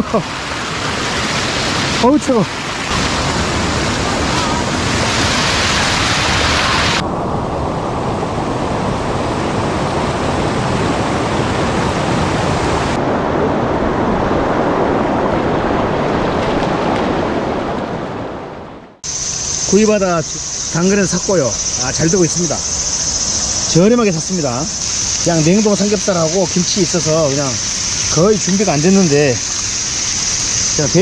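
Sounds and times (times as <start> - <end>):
stream rushing over rocks: 0.0 - 7.0, 8.2 - 18.4, 23.6 - 31.0.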